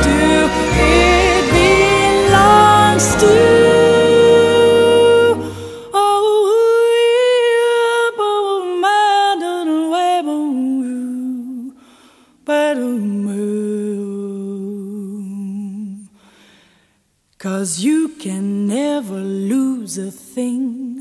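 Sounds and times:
woman singing wordless jazz line: 0.0 - 11.7.

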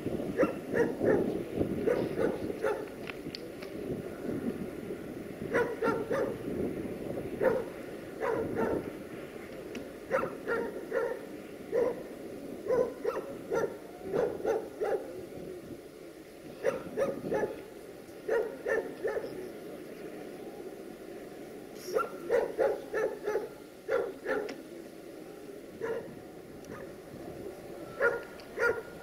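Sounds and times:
dog barking: 0.4 - 2.9, 5.5 - 6.4, 7.4 - 8.8, 10.1 - 12.0, 12.7 - 15.1, 16.6 - 17.6, 18.3 - 19.4, 21.9 - 24.6, 25.8 - 26.1, 28.0 - 28.9.

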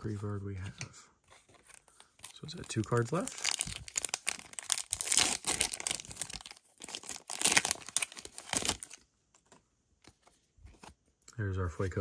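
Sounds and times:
plastic wrapper crinkling and tearing: 1.6 - 9.0.

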